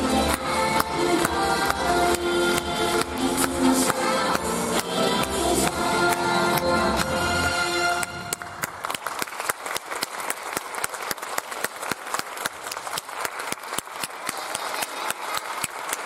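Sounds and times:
music: 0.0 - 8.7
audience applauding: 0.0 - 16.0.

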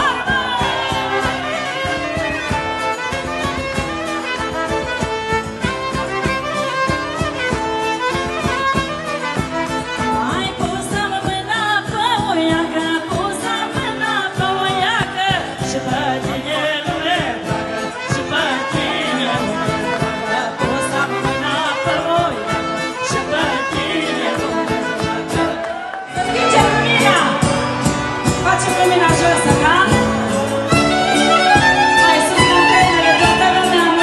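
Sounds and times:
steady beat: 0.0 - 11.2
fiddle playing folk melody: 0.0 - 34.0.

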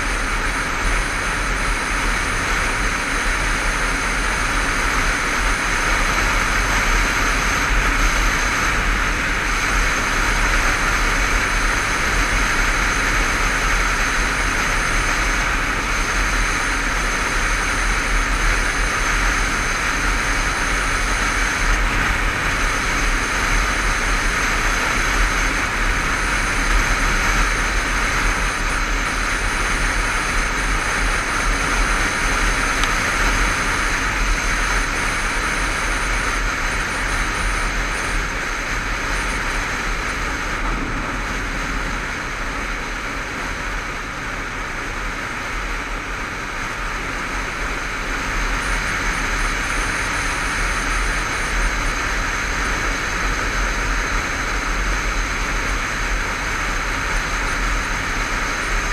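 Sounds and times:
motorcycle road noise: 0.0 - 58.9
wind rush: 19.1 - 44.7.

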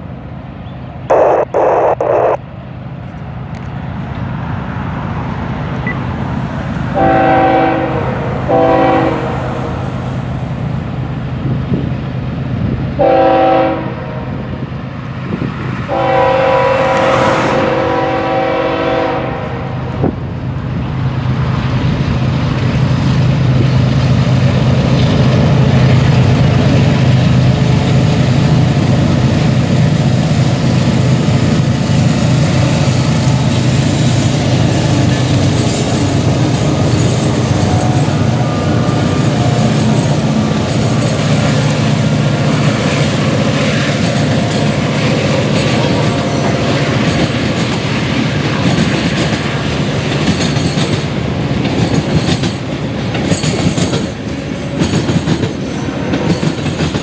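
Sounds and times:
diesel locomotive engine rumble: 0.0 - 57.0
train wheels clicking over rail joints: 20.0 - 57.0.

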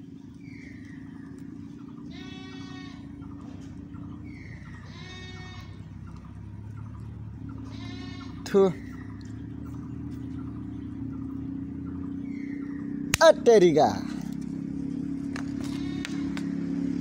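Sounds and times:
goat bleating: 2.0 - 3.2, 4.7 - 5.9, 7.5 - 8.7, 15.6 - 16.4.

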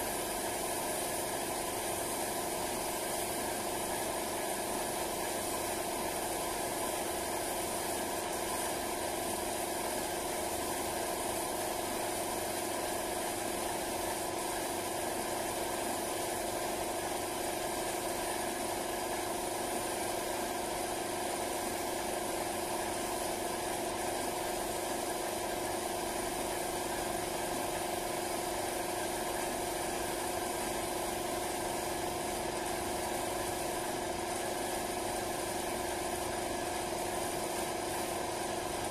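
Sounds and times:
air compressor humming: 0.0 - 11.8, 24.9 - 38.9.

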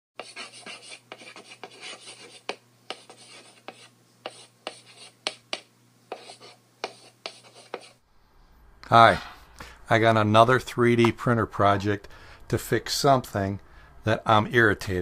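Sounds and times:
chalk scratching on blackboard: 0.2 - 8.0.

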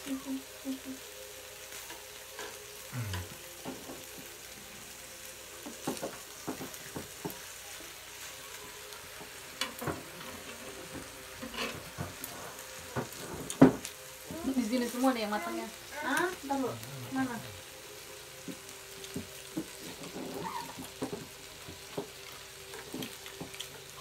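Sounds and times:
meat sizzling in a pan: 0.0 - 24.0.

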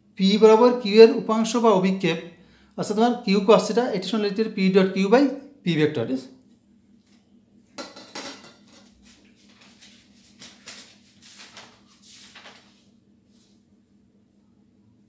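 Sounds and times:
faint scuffs and rustles: 8.7 - 13.7.

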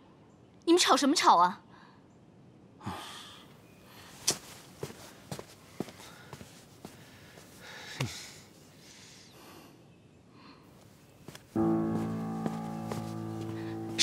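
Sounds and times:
background music sustained notes: 11.6 - 14.0.

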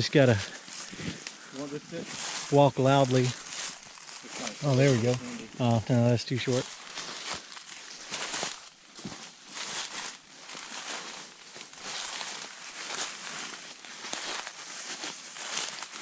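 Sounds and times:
footsteps through dry leaves: 0.0 - 16.0.

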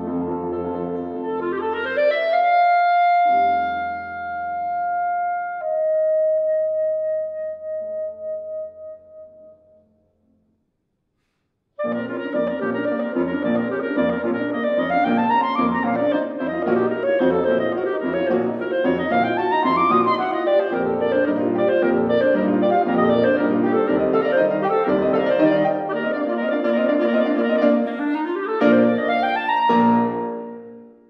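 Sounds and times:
piano accompaniment: 0.0 - 8.9, 11.8 - 31.0
clarinet playing fast runs: 0.6 - 4.0, 11.8 - 30.8.

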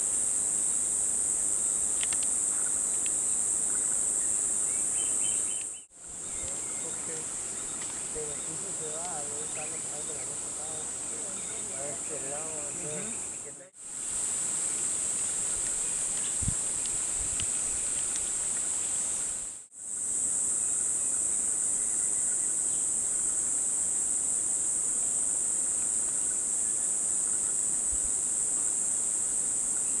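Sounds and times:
insects droning: 0.0 - 30.0.

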